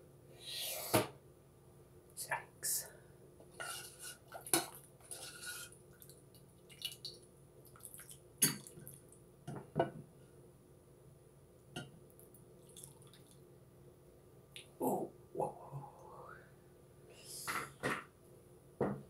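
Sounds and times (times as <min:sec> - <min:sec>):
soup sloshing and dripping: 0:04.3 - 0:09.2, 0:12.1 - 0:13.4.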